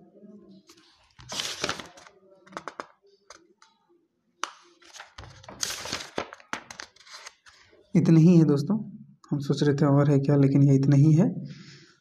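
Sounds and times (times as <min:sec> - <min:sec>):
book pages rustling: 0:00.7 - 0:03.4, 0:04.4 - 0:07.6.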